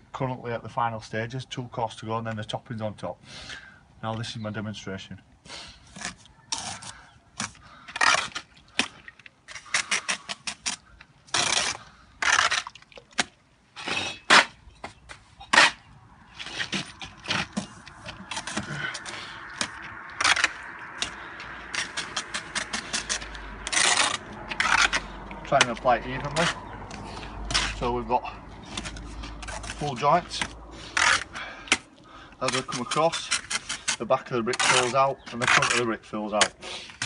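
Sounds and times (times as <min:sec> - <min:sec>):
trowel scraping mortar: 0:05.7 - 0:37.0.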